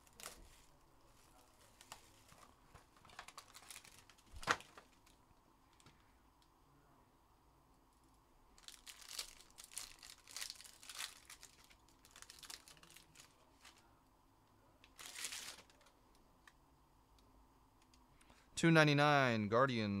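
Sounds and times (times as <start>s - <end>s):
foil wrapper crinkling and tearing: 0.0s - 0.6s, 1.6s - 5.2s, 8.6s - 13.8s, 14.9s - 15.9s.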